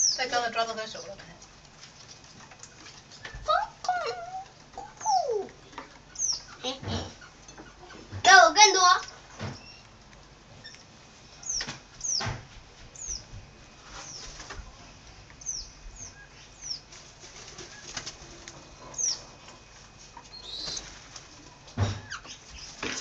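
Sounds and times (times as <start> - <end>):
high falling whistled bird calls: 4.8 - 5.5, 20.3 - 20.8
birds flapping wings: 13.9 - 14.8, 16.8 - 18.7, 20.5 - 21.6.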